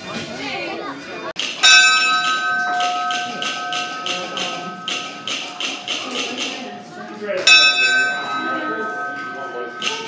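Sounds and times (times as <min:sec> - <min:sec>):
locomotive bell ringing: 0:01.6 - 0:05.8, 0:07.4 - 0:10.0.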